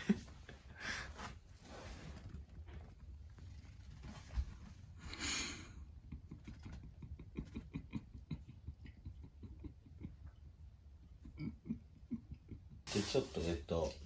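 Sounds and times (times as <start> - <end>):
salt sprinkling hiss: 12.9 - 14.0.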